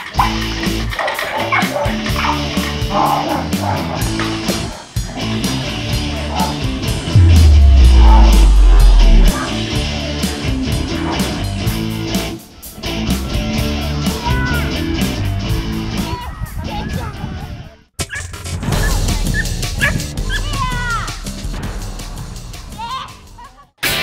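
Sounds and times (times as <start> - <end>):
deep bass note: 7.1 - 9.4.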